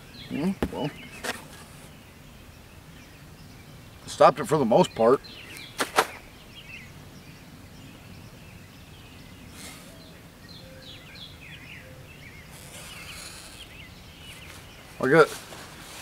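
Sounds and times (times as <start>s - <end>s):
low outdoor background noise: 0.0s - 16.0s
small birds chirping: 0.0s - 16.0s
faint rustles: 12.2s - 16.0s.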